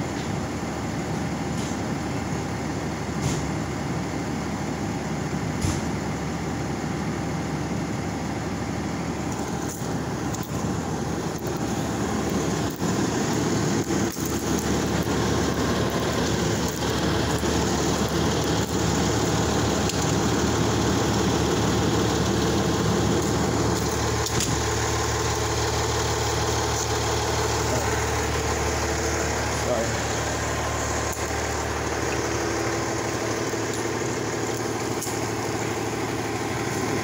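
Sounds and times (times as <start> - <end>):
vehicle engines idling: 0.0 - 37.0.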